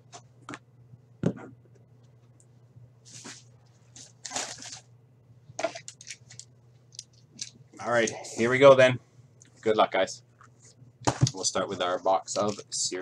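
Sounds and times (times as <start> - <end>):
rustles and scrapes: 3.0 - 4.8.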